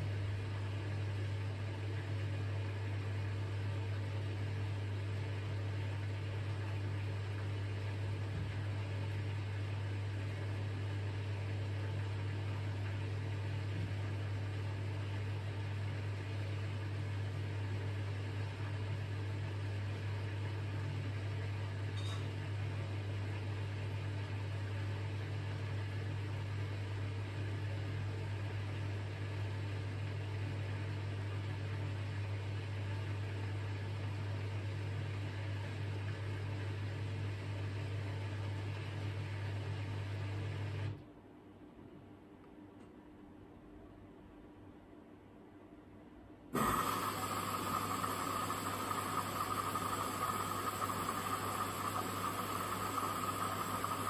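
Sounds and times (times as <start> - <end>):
washing machine drain pump humming: 0.0 - 21.6, 46.5 - 54.0.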